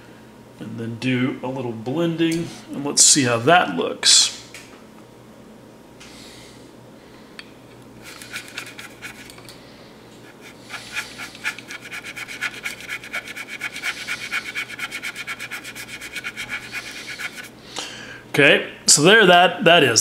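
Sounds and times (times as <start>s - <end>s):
paintbrush scrubbing: 8.0s - 9.3s, 10.2s - 17.6s.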